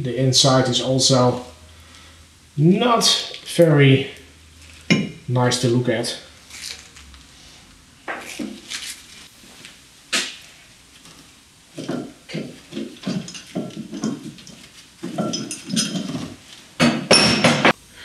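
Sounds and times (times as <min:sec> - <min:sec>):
metal parts knocking and clattering: 0:11.8 - 0:17.8
ringing metallic clinks: 0:11.9 - 0:17.6.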